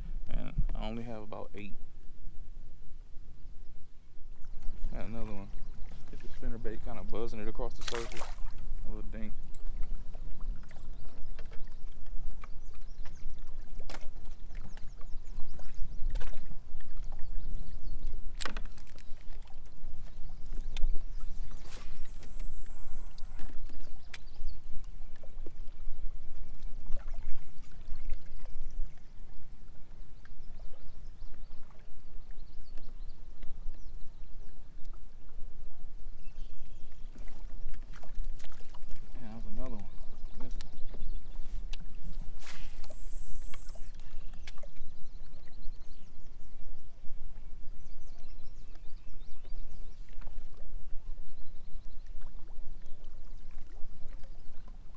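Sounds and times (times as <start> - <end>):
water lapping against kayak hull: 0.0 - 54.9
wind rumble on microphone: 0.0 - 54.9
short high hiss: 42.4 - 43.9.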